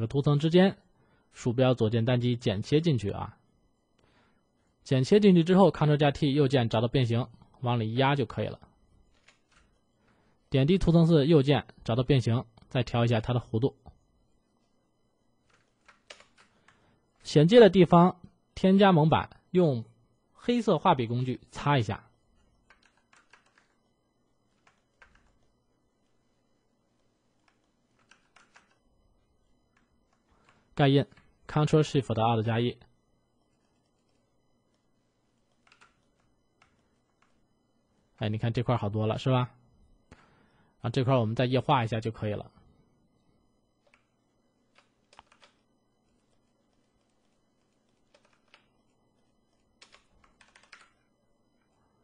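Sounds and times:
faint keyboard clicks: 9.1 - 9.8, 15.4 - 16.8, 22.4 - 23.8, 24.5 - 26.2, 27.0 - 28.8, 35.4 - 37.4, 43.8 - 51.7
faint computer input clicks: 43.8 - 45.6.

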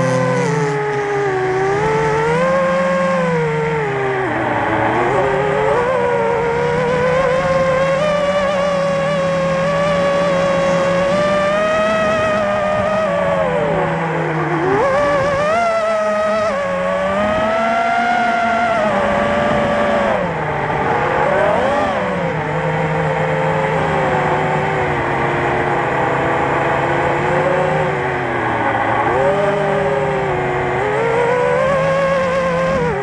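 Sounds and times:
drone motors whining: 0.0 - 33.0.

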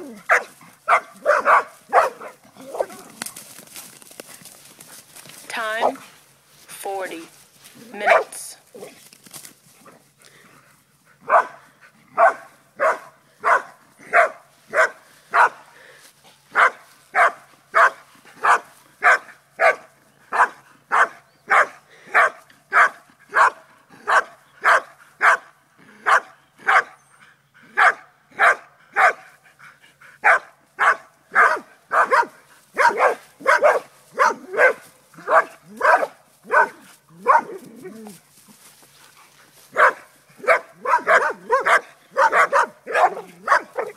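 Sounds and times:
dog barking: 0.3 - 3.0, 8.0 - 8.3, 11.2 - 11.6, 12.2 - 15.6, 16.5 - 27.0, 27.8 - 29.3, 30.2 - 37.6, 39.7 - 43.9.

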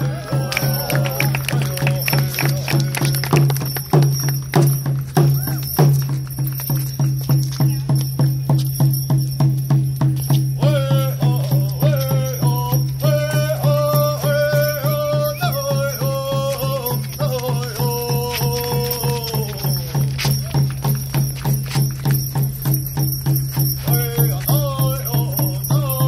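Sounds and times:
people singing: 0.0 - 3.1, 10.6 - 20.6, 23.9 - 26.0
drum beaten in fast rhythm: 0.0 - 26.0.

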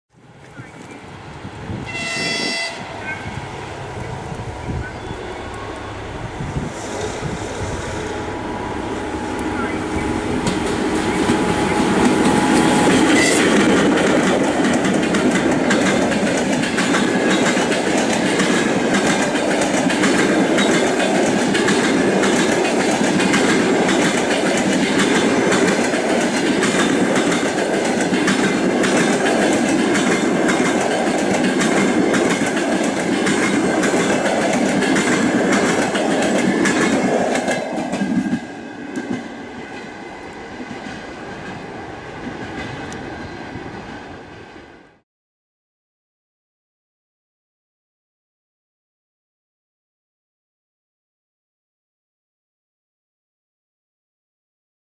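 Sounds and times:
train wheels clickety-clack: 9.3 - 44.0.

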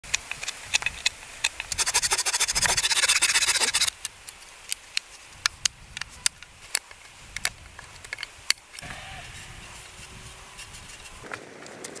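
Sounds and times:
knife scraping wooden stick: 0.2 - 3.9, 9.2 - 11.2.

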